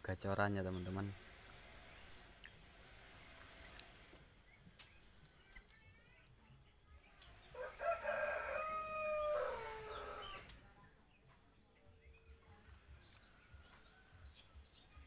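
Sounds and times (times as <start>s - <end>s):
rooster crowing: 7.5s - 10.5s.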